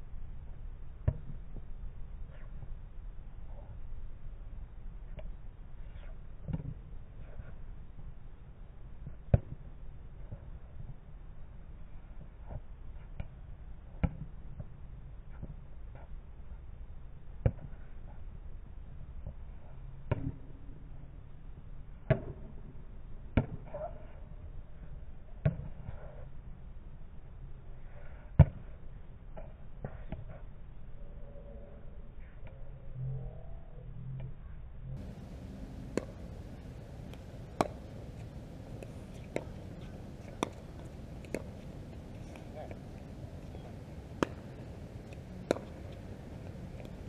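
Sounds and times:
steady low rumble: 30.9s - 47.0s
paddles striking pickleball: 35.0s - 47.0s
paddles hitting plastic ball: 44.2s - 46.0s.

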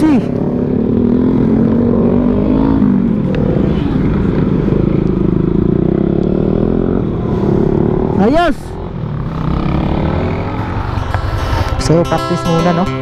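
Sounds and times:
motorcycle engine running: 0.0s - 13.0s.

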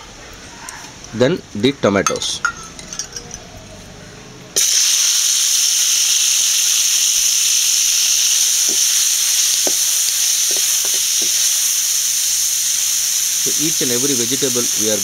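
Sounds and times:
tomatoes sizzling in hot oil: 4.6s - 15.0s.

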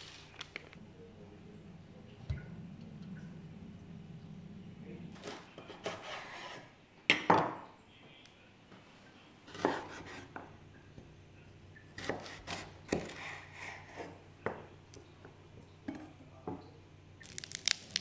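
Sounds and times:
light scrapes on a hard surface: 5.2s - 6.7s.

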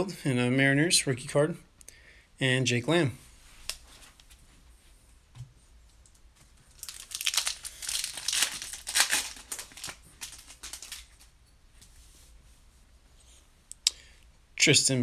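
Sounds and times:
foil wrapper tearing and crinkling: 6.7s - 11.3s.

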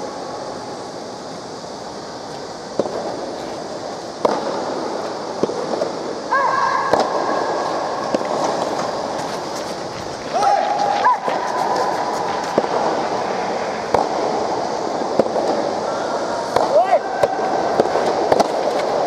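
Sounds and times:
tennis balls popping: 2.7s - 3.3s, 4.2s - 6.0s, 6.8s - 13.2s, 13.8s - 15.8s, 16.5s - 19.0s
long shouted call: 6.3s - 7.0s.

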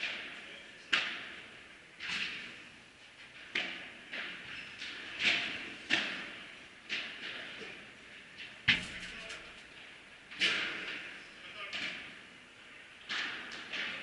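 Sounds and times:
ball bouncing off glass walls: 8.7s - 9.7s.

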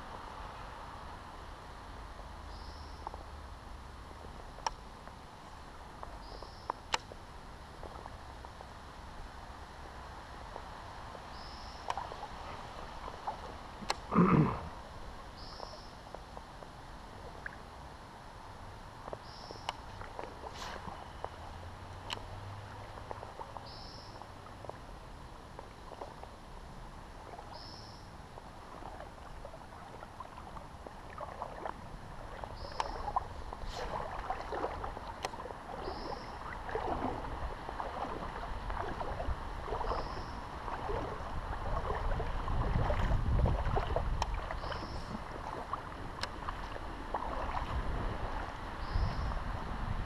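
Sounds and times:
water sloshing and splashing: 9.7s - 15.8s, 19.0s - 50.0s.

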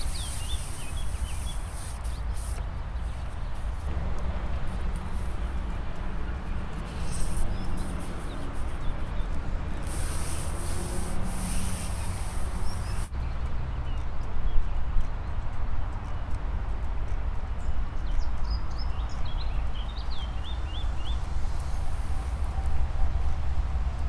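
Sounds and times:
high hiss: 0.0s - 2.6s, 9.8s - 13.1s
wind buffeting the microphone: 0.0s - 24.0s.

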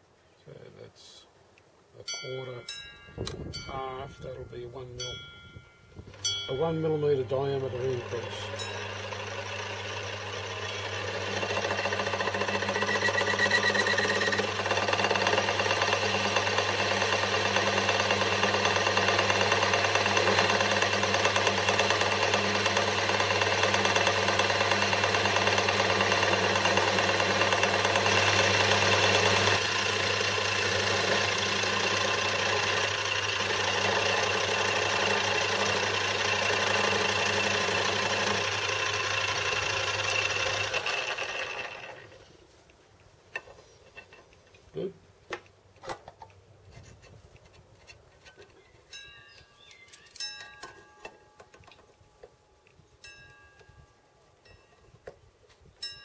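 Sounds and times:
boring bar cutting metal: 6.6s - 42.2s
lathe motor hum: 7.3s - 42.2s.

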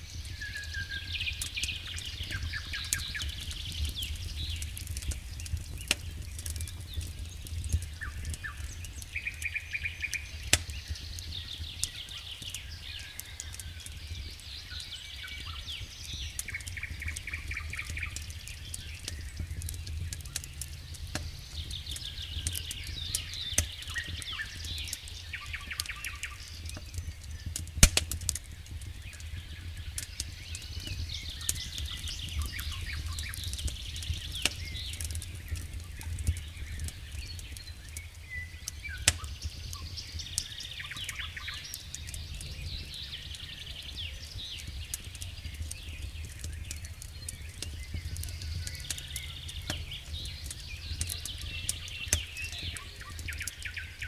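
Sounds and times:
campfire crackling and popping: 0.0s - 54.0s
low steady rumble: 17.0s - 24.6s
birds trilling: 30.0s - 54.0s.

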